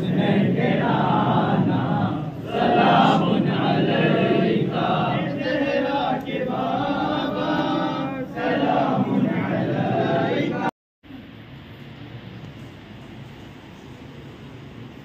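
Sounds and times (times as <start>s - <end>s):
crowd of men chanting: 0.0s - 10.7s.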